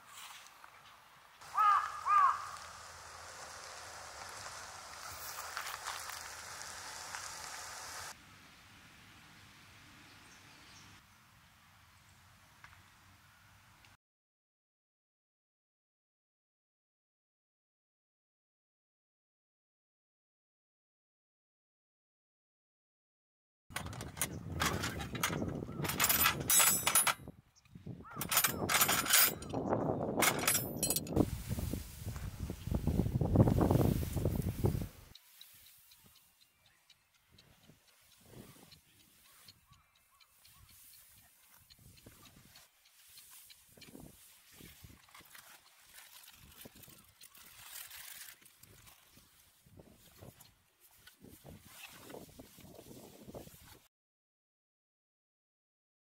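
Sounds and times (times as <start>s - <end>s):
leaves rustling in wind: 0.0s - 11.7s, 27.8s - 36.2s, 40.4s - 53.9s
outdoor background noise: 0.0s - 14.0s, 23.7s - 53.9s
crackles: 0.4s - 8.2s, 40.2s - 52.6s
metal tent pegs clattering: 23.7s - 27.3s, 28.1s - 31.2s.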